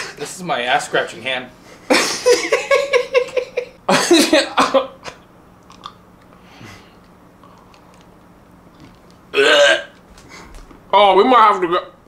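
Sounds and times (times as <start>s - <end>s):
man laughing: 1.9s - 5.2s.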